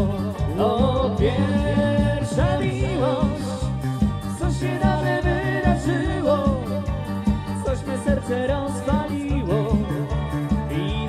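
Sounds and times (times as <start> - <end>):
live dance band playing pop: 0.0 - 11.0
person singing: 0.0 - 11.0.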